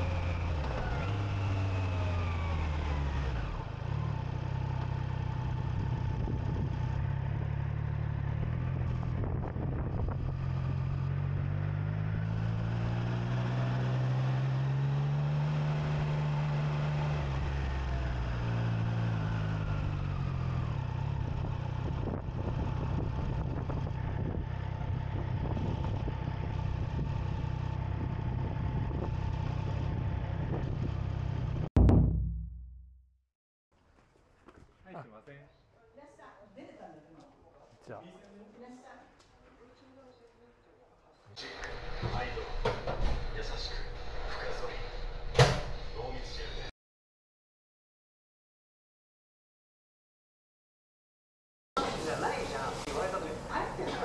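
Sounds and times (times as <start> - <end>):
motorcycle engine: 0.0 - 33.0, 41.4 - 46.7.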